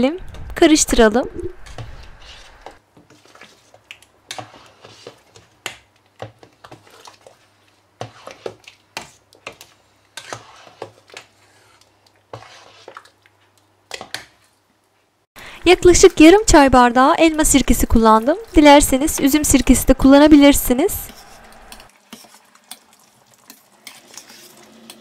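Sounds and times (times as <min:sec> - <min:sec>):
spoon scraping a metal pot: 0:08.0 - 0:13.1, 0:23.5 - 0:25.0.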